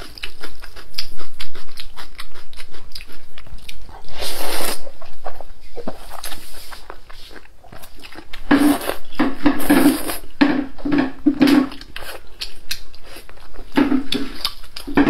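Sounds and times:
chewing noises: 0.0 - 15.0.

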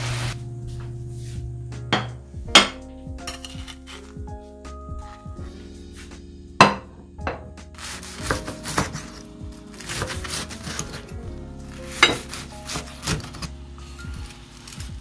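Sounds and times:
background music: 0.0 - 15.0
kitchen utensils knocking on cookware: 1.9 - 3.8, 6.6 - 7.5, 11.9 - 13.5.

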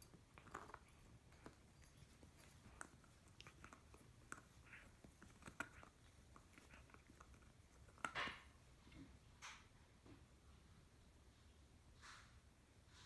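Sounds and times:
puppy chewing a bone: 0.0 - 9.4.

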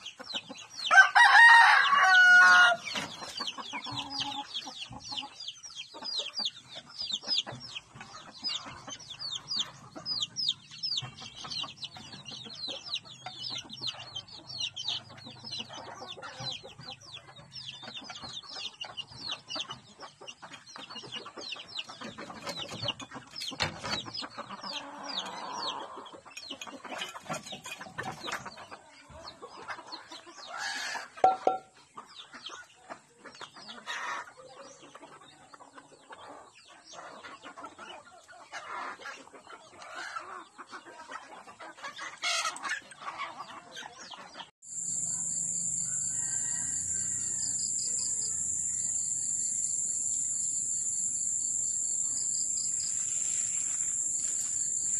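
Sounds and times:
chickens clucking: 0.0 - 54.9
chicks peeping: 0.0 - 54.9.

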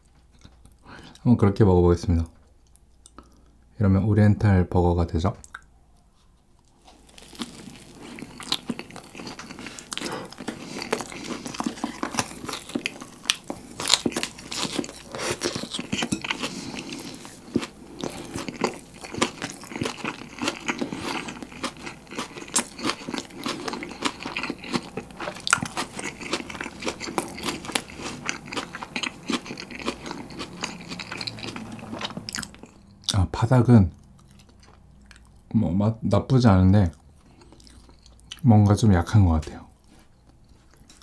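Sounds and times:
crunchy chewing: 5.4 - 33.2, 33.9 - 35.5, 36.9 - 38.5, 39.4 - 41.0.

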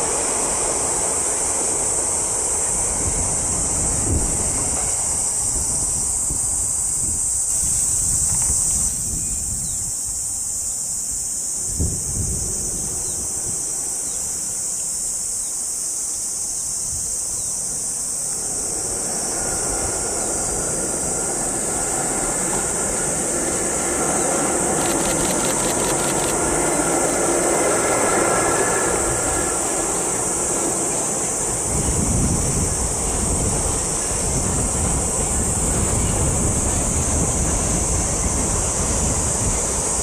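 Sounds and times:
freight train rumbling past: 0.0 - 40.0
high insect buzz: 0.0 - 40.0
rapid clicks: 24.7 - 26.4.

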